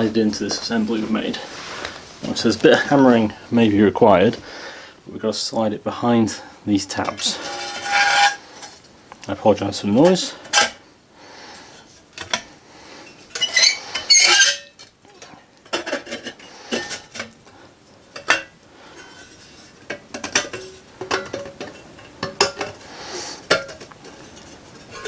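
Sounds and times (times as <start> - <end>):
metal sheets clanking: 7.0 - 8.8
metal sheets scraping: 7.0 - 8.8, 13.0 - 14.9, 15.7 - 17.4.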